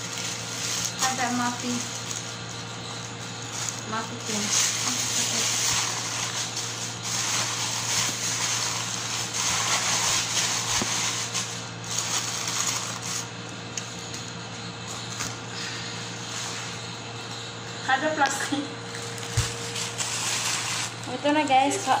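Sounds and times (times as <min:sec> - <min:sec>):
plastic wrap crinkling: 0:00.0 - 0:14.3, 0:18.9 - 0:22.0
steady low hum: 0:00.0 - 0:22.0.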